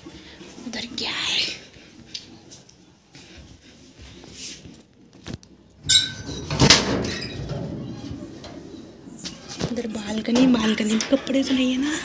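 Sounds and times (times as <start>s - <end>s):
door squeak: 5.9s - 8.3s
door scraping as it swings: 5.9s - 12.0s.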